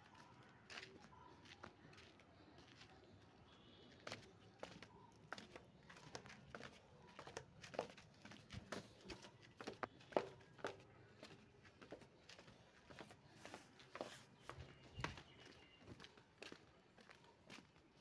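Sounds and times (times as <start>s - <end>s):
footsteps on concrete stairs: 4.0s - 17.8s.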